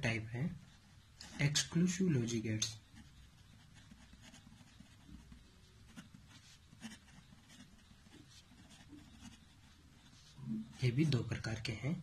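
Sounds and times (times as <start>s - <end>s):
low background hum: 0.0s - 12.0s
pen scratching on paper: 2.8s - 10.8s.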